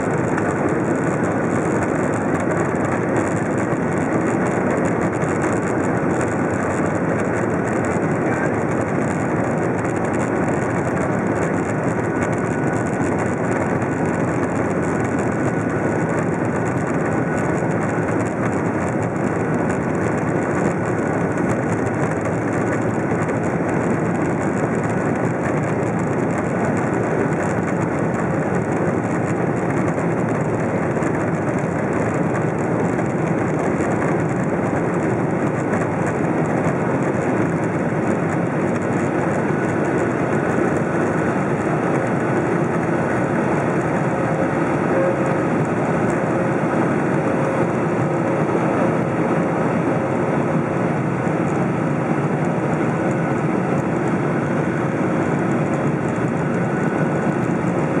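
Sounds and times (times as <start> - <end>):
aircraft cabin engine noise: 0.0 - 58.0
faint high whine: 44.0 - 47.6.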